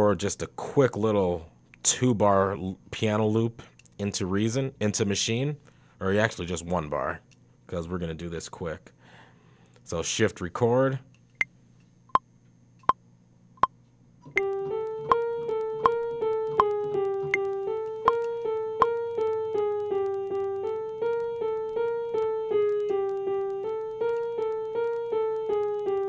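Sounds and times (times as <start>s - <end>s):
metronome ticks: 14.3s - 26.0s
piano playing repeated figure: 14.3s - 26.0s.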